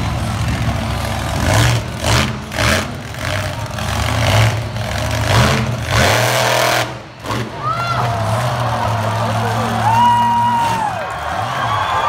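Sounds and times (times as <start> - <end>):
monster truck engine revving: 0.0 - 12.0.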